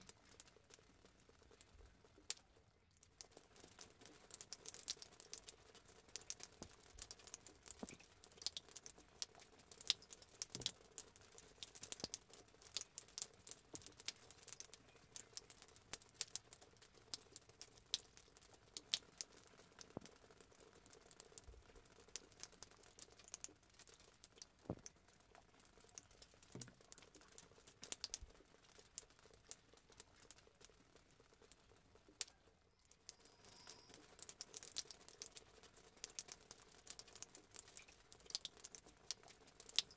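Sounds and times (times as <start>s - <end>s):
pattering ticks and clicks: 33.0s - 39.9s.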